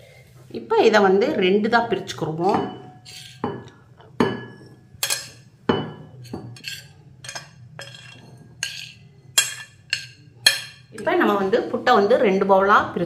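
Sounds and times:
spoon clinking against glass bowls: 0:02.5 - 0:11.1.

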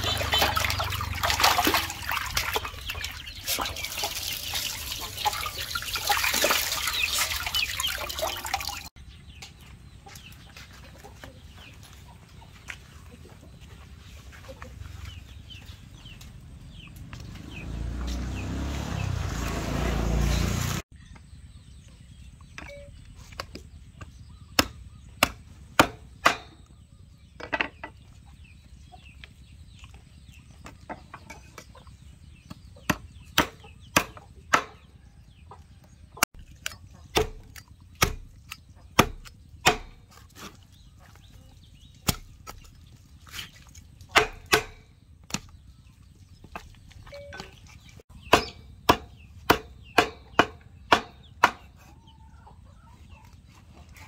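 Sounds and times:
cleaver chopping on wooden board: 0:24.5 - 0:26.6, 0:32.8 - 0:34.8, 0:36.4 - 0:40.1, 0:44.1 - 0:45.6, 0:48.3 - 0:51.8.

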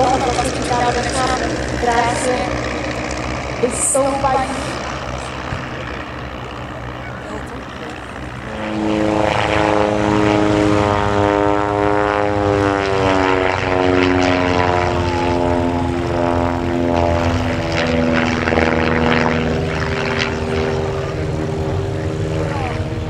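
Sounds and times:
light aircraft engine and propeller: 0:00.0 - 0:23.0.

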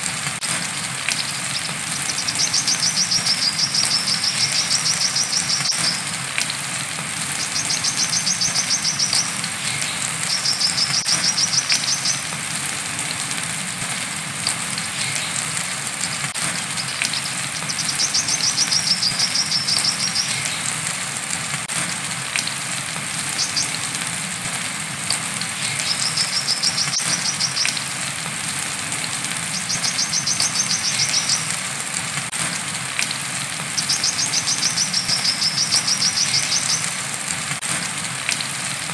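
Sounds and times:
rain hissing: 0:00.0 - 0:38.9
sunbird singing trilled phrases: 0:01.2 - 0:06.0, 0:07.4 - 0:12.4, 0:16.7 - 0:20.6, 0:23.3 - 0:23.8, 0:25.6 - 0:27.9, 0:29.5 - 0:31.6, 0:33.8 - 0:37.0.

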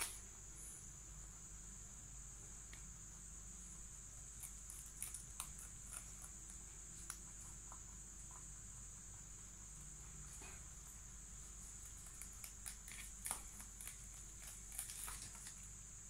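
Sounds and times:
high-pitched hiss: 0:00.0 - 0:05.1
rustling: 0:09.3 - 0:16.0.

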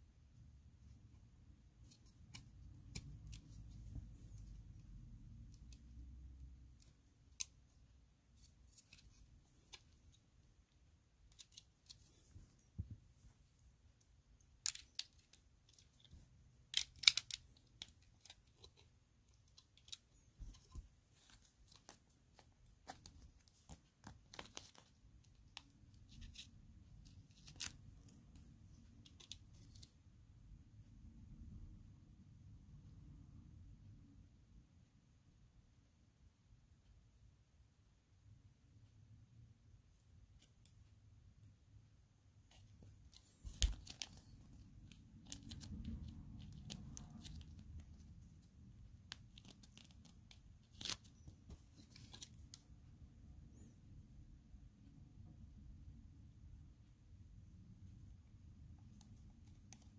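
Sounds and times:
plastic toy bricks clicking: 0:16.7 - 0:18.4.

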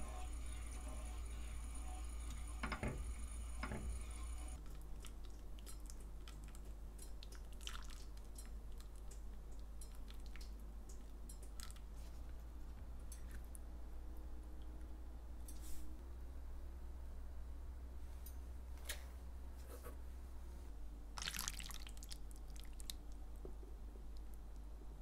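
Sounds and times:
small irregular clicks and taps: 0:04.6 - 0:11.9.

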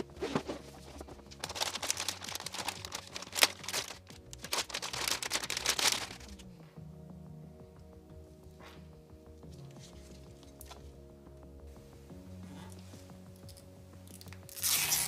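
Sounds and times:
plastic bag crinkling: 0:00.0 - 0:06.5
soft background music: 0:00.0 - 0:15.0.

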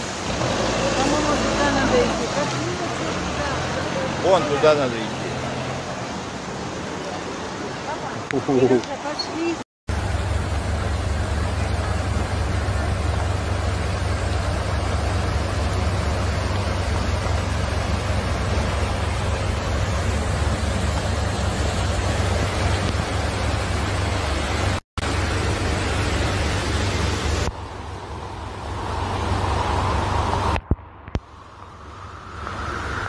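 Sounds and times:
heavy rain rushing: 0:00.0 - 0:08.5, 0:09.9 - 0:33.0
deep rumble: 0:09.9 - 0:33.0.

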